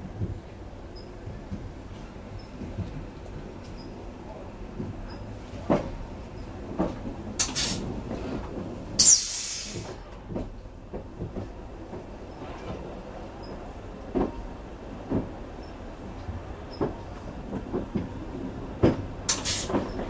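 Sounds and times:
train wheels clunking over rail joints: 0.0 - 20.0
air hissing: 9.0 - 10.0, 19.3 - 19.8.

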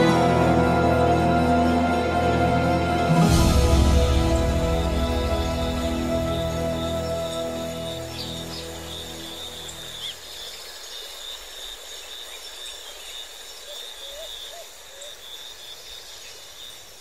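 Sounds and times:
background music: 0.0 - 10.2
insects buzzing: 4.2 - 17.0.

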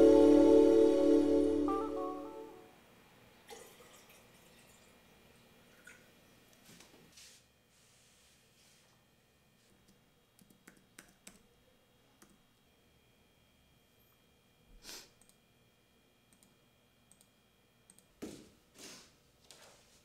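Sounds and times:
computer mouse clicks: 9.8 - 11.4, 16.3 - 17.3, 17.9 - 18.1.

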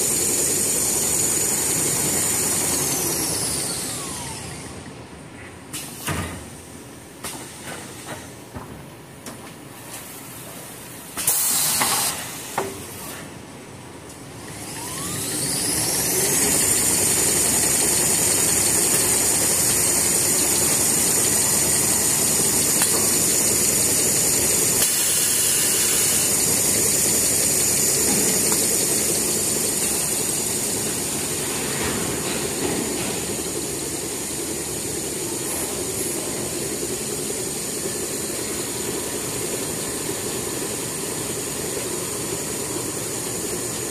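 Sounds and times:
short loud hiss: 11.2 - 12.5
motor whining: 14.5 - 24.8.

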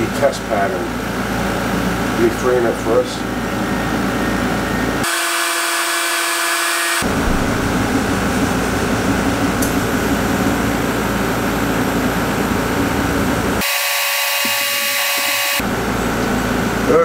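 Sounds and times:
laser cutter whooshing hum: 5.1 - 11.7.

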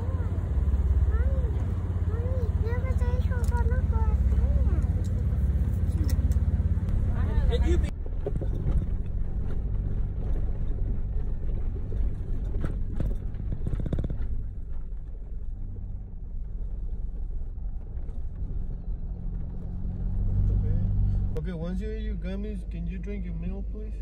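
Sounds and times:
off-road vehicle engine and road rumble: 0.0 - 24.0
knocks and rattles: 8.0 - 18.7.

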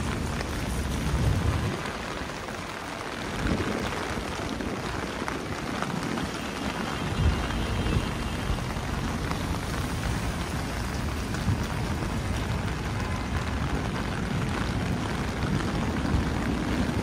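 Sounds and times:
rain pattering on an umbrella: 0.0 - 17.0.

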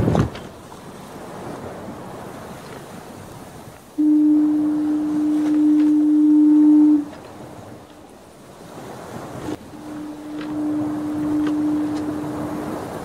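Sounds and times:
ocean waves: 0.0 - 13.0
wind: 0.0 - 13.0
ship's foghorn blast: 3.5 - 13.0.

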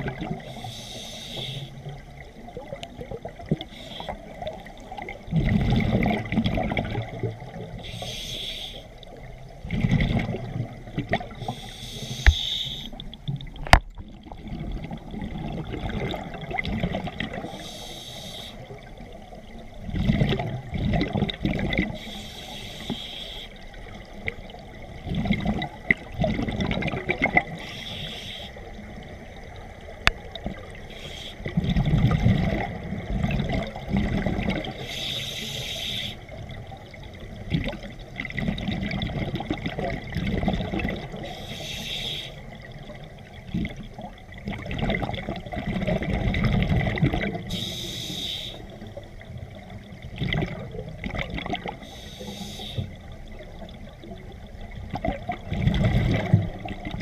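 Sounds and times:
regulator inhale hiss: 0.4 - 1.9, 3.7 - 4.4, 7.8 - 9.0, 11.4 - 13.0, 17.4 - 18.8, 22.0 - 23.7, 27.6 - 28.8, 30.9 - 31.5, 34.8 - 36.3, 41.2 - 42.6, 47.5 - 48.8, 51.8 - 53.0.

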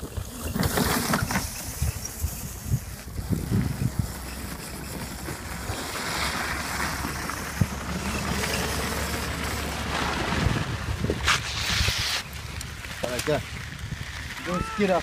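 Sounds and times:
wind on microphone: 0.0 - 6.0, 9.3 - 12.3, 13.5 - 15.0
electric ride-on car motor rumble: 2.3 - 11.2.

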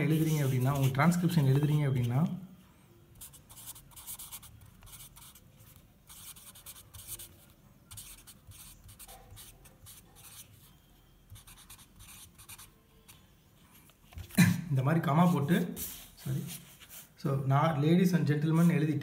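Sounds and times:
marker writing on paper: 0.0 - 2.0, 3.2 - 10.7, 11.3 - 12.8, 15.2 - 17.2.

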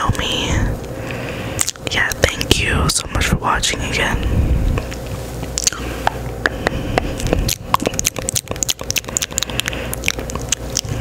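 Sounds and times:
faint hum: 0.0 - 11.0
wet mouth clicks and lip smacks: 4.8 - 11.0.

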